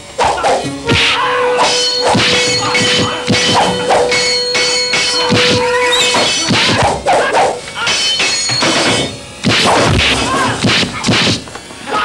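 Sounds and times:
background music: 0.2s - 6.8s.

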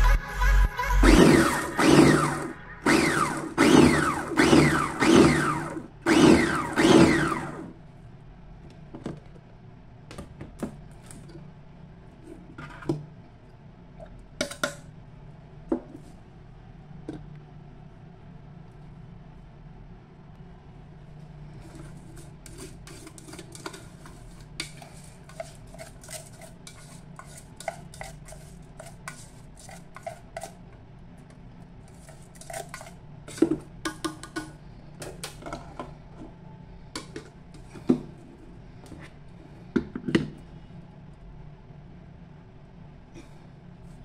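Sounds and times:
wooden skewer stirring greens: 21.6s - 30.6s.

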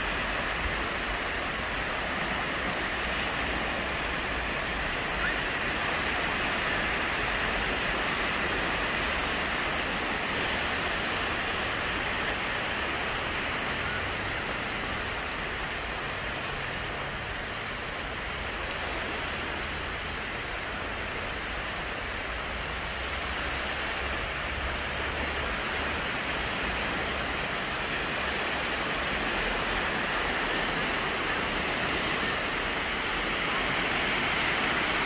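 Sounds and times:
small waves washing onto beach: 0.0s - 35.0s.

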